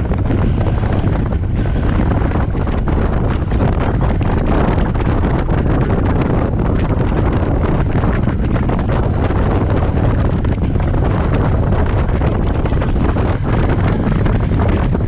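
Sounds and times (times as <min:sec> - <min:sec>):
motorcycle engine running: 0:00.0 - 0:15.0
wind rush on microphone: 0:00.0 - 0:15.0.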